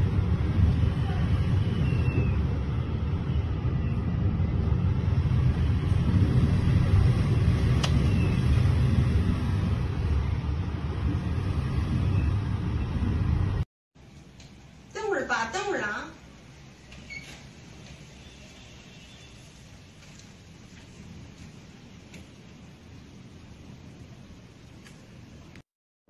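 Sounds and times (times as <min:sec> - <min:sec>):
strong wind blowing: 0:00.0 - 0:13.6.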